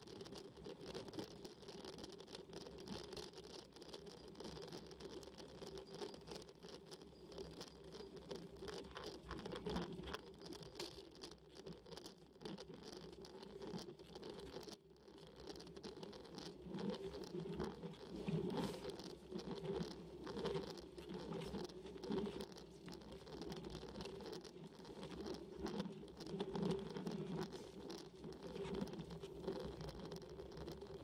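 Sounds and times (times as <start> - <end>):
road vibration pattering: 8.3 - 31.0.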